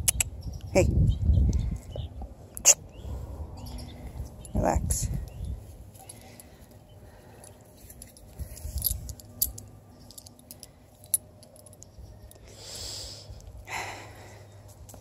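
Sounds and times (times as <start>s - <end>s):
dog leash hardware clinking: 5.9s - 12.5s.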